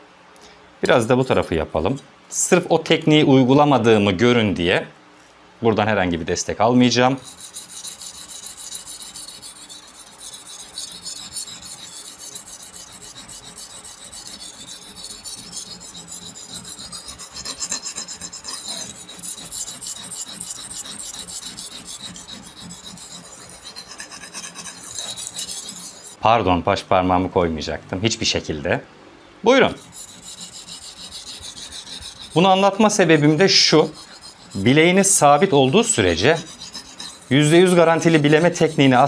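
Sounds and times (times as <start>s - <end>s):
knife scraping on whetstone: 7.1s - 26.2s, 29.7s - 39.0s.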